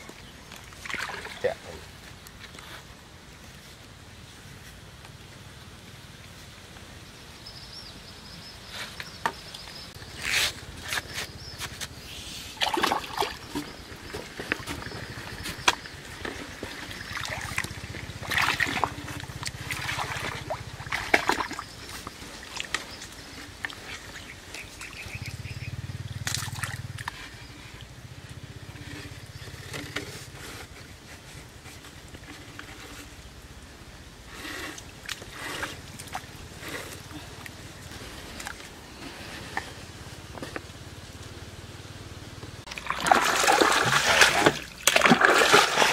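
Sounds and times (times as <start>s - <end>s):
trickling water: 0.0s - 2.4s, 12.6s - 30.2s, 42.6s - 45.9s
bamboo poles knocking and clicking: 12.6s - 19.8s.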